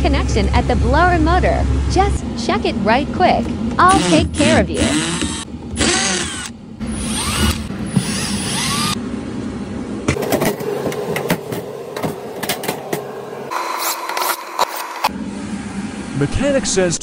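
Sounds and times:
cordless drill spinning screws: 4.0s - 9.0s.

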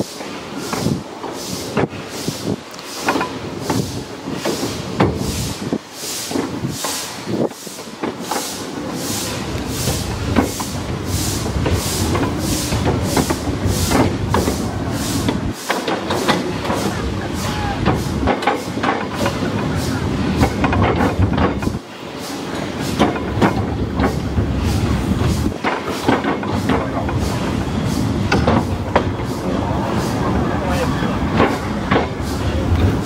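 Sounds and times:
steam locomotive exhaust chuffs: 0.0s - 33.0s
wheels clattering on track: 0.0s - 33.0s.

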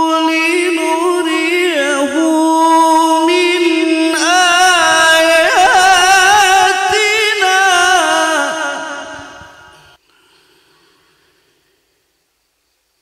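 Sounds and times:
man reciting melodically: 0.0s - 10.0s.

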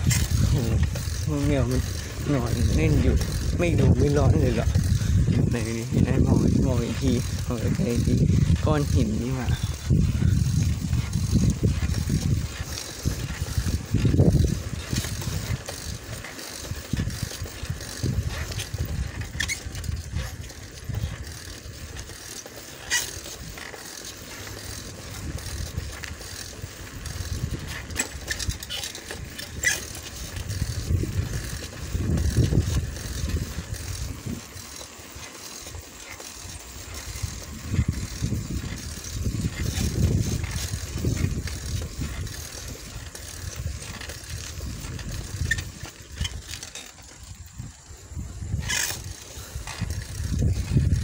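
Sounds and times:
wind rumble on microphone: 0.0s - 22.2s, 24.4s - 51.0s
bike light rattling: 0.0s - 51.0s.

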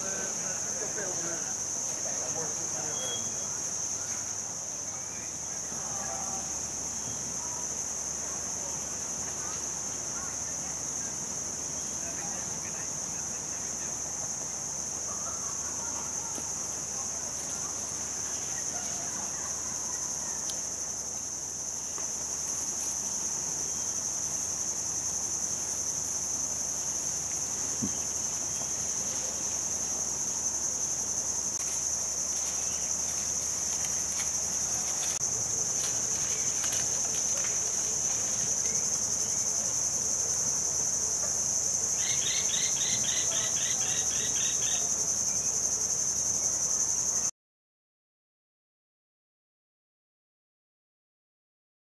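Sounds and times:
insects droning: 0.0s - 47.3s
short insect chirps: 2.8s - 4.3s.

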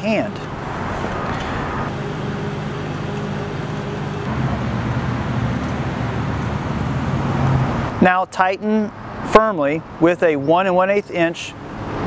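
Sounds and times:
engine running: 0.1s - 8.0s.

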